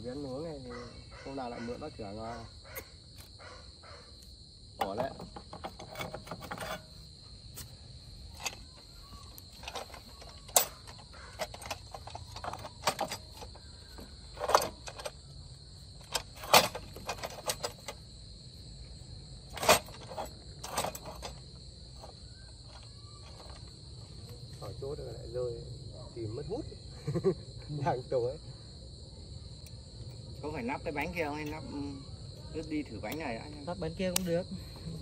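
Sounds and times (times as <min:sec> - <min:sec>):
crickets chirring: 0:00.0 - 0:35.0
metal clanks and knocks: 0:04.8 - 0:07.1, 0:08.3 - 0:15.2, 0:16.0 - 0:18.1, 0:19.5 - 0:23.6.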